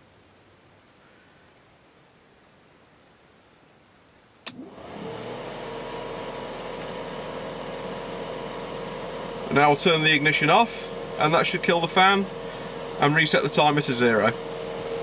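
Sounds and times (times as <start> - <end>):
electric fan motor whirring: 4.5 - 15.0.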